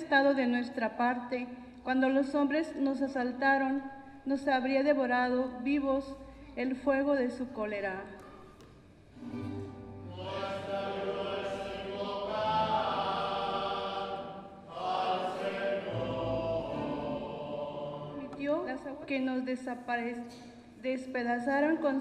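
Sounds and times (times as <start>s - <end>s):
person singing a psalm response: 10.0s - 18.4s.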